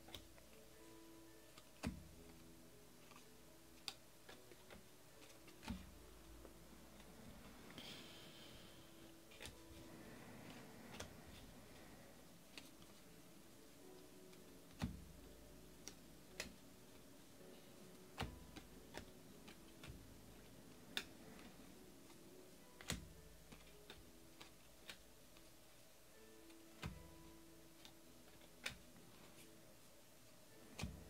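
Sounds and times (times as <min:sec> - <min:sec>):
cards flipping with clicks: 0:00.0 - 0:00.5, 0:03.0 - 0:07.8, 0:09.2 - 0:13.1, 0:13.9 - 0:17.0, 0:17.9 - 0:25.6, 0:26.4 - 0:29.6
faint steady hum: 0:00.0 - 0:31.0.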